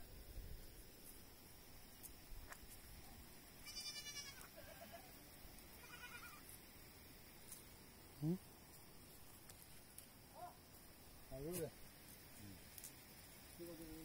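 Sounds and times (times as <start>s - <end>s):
goat kids bleating: 3.6s - 5.1s, 5.8s - 6.5s.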